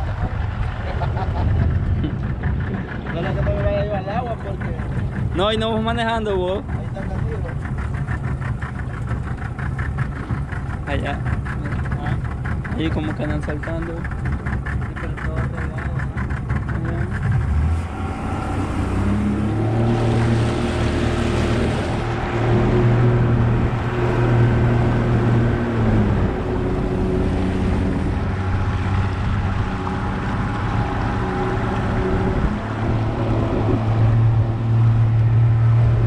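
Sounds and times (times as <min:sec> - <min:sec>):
boat motor running: 0:00.0 - 0:36.0
water rushing past hull: 0:00.0 - 0:36.0
wind rushing: 0:17.9 - 0:36.0.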